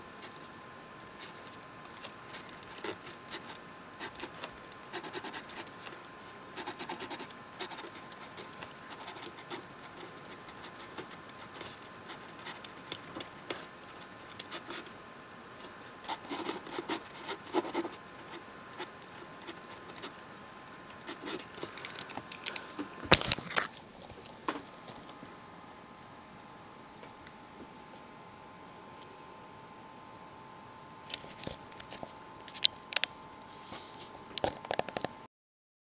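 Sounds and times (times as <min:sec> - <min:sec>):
pen writing on paper: 0:02.3 - 0:06.0, 0:06.6 - 0:14.9, 0:16.1 - 0:20.2, 0:21.0 - 0:21.7.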